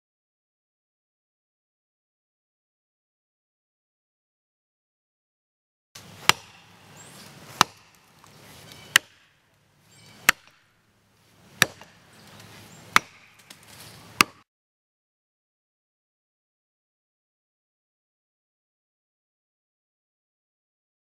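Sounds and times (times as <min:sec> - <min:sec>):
axe chopping tree trunk: 0:06.0 - 0:09.4, 0:10.1 - 0:10.7, 0:11.4 - 0:14.5.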